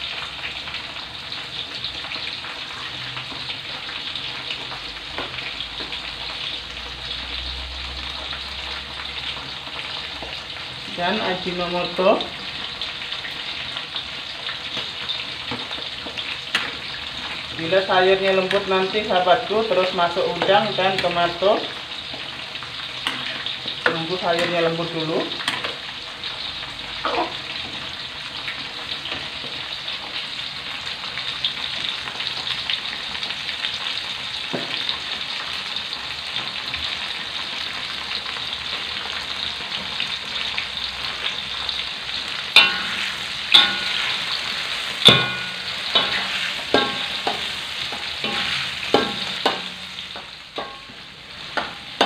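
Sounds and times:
vegetables sizzling in hot oil: 0.0 - 52.0
metal ladle scraping a wok: 42.5 - 52.0.

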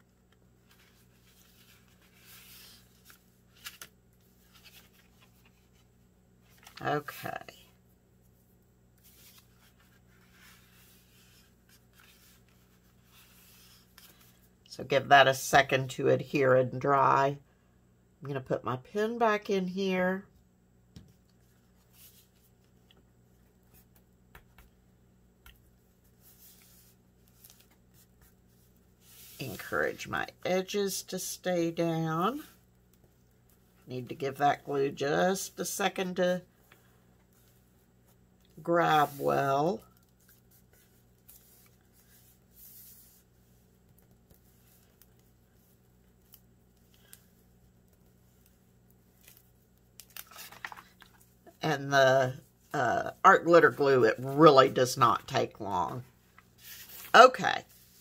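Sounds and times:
low room hum: 0.0 - 58.0
paper rustling: 0.6 - 7.3, 9.0 - 14.4, 26.1 - 29.8, 39.0 - 51.4, 56.2 - 58.0.

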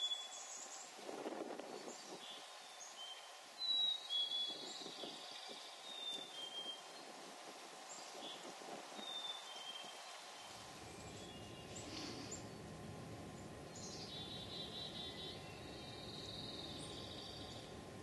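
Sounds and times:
low steady rumble: 0.0 - 18.0
songbirds chirping: 0.0 - 18.0
bird trills: 13.4 - 17.8.

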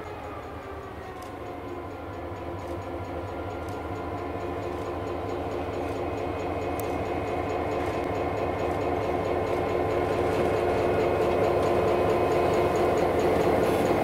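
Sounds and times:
diesel locomotive engine: 0.0 - 14.0.

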